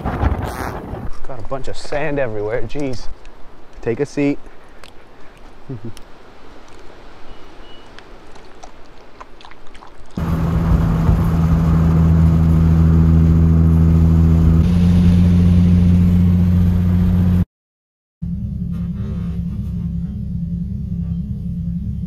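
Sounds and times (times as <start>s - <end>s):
car engine drone from cabin: 10.2s - 17.4s, 18.2s - 22.0s.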